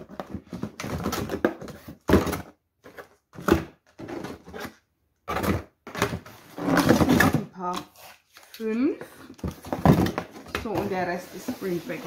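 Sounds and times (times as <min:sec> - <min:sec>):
packaging rustling and knocking: 0:00.0 - 0:07.8, 0:09.3 - 0:12.0.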